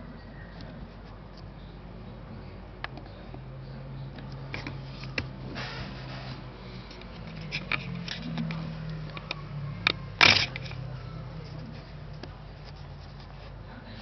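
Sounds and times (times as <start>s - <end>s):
brief rubbing: 4.7s - 8.4s.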